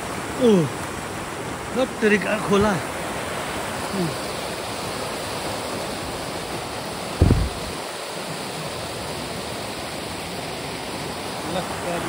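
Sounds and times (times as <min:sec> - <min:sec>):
stream rushing over boulders: 0:00.0 - 0:12.0
dull low thump: 0:07.2 - 0:07.8.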